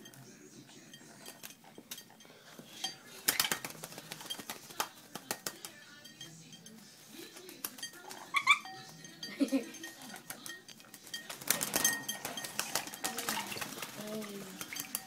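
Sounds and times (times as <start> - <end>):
parrot splashing water: 1.2 - 9.2, 9.8 - 15.0
water pattering on bowl: 7.6 - 15.0.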